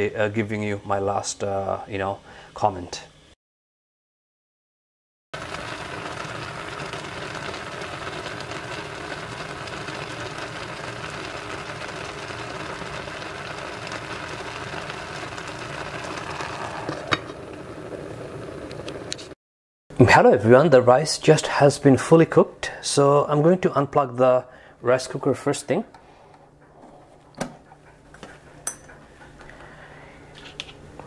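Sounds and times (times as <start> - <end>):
rice cooker bubbling: 5.4 - 19.4.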